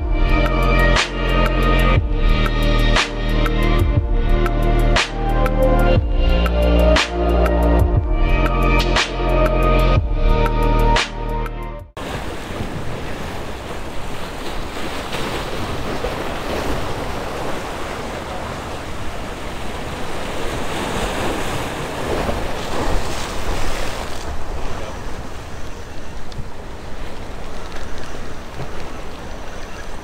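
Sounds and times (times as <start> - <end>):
surf breaking over rocks: 12.0 - 30.0.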